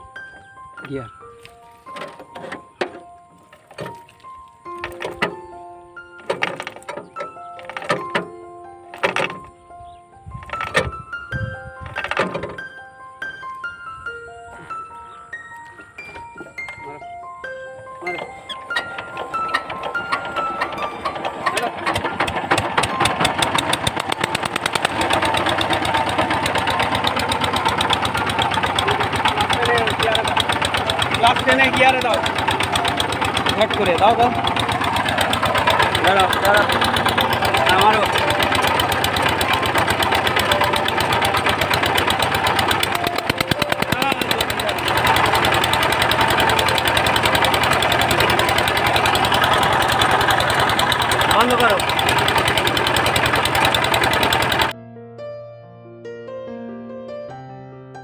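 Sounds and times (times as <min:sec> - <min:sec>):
diesel tiller engine starting: 0:01.7 - 0:13.8, 0:14.5 - 0:54.8.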